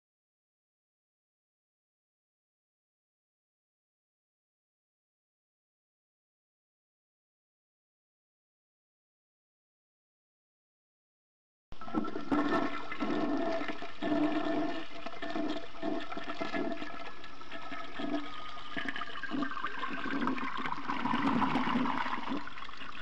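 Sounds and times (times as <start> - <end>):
toilet flushing: 11.8 - 23.0.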